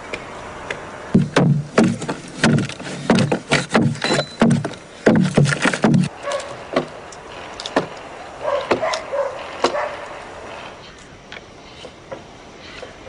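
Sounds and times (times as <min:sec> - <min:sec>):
tool chopping wood: 0:01.1 - 0:06.1, 0:06.7 - 0:07.0, 0:07.6 - 0:08.0, 0:08.7 - 0:09.0.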